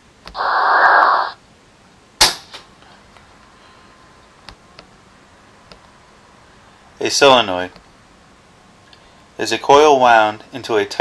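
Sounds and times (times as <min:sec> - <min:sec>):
hissing burst: 0:00.3 - 0:01.4
sharp crack: 0:02.2 - 0:02.8.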